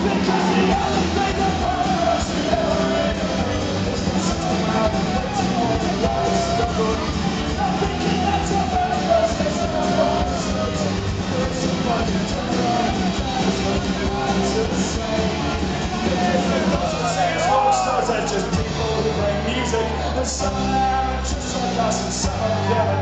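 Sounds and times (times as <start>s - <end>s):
rock band playing live: 0.0s - 23.0s.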